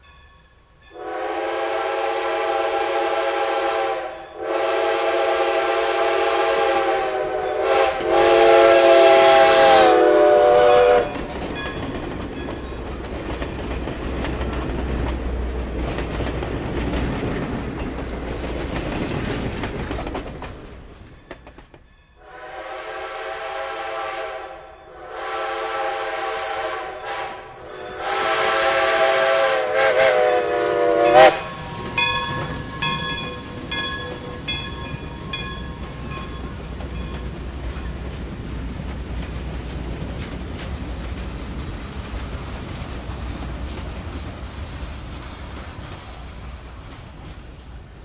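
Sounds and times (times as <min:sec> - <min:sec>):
chime steam whistle: 0:00.0 - 0:11.7, 0:22.2 - 0:37.3
train rumble: 0:00.0 - 0:48.0
bell ringing: 0:31.4 - 0:37.3.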